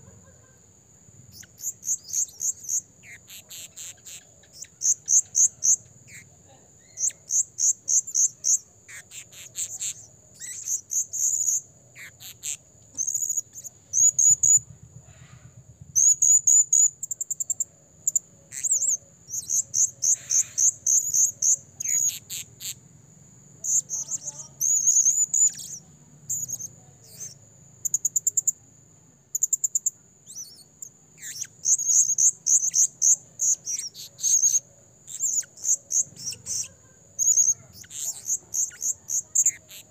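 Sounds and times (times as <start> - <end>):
parrot chirping rapidly: 1.3 - 14.6, 23.6 - 27.4, 30.3 - 39.9.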